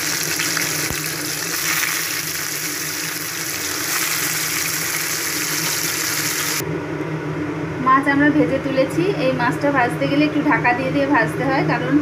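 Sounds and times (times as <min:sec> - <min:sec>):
fish sizzling in hot oil: 0:00.0 - 0:06.6.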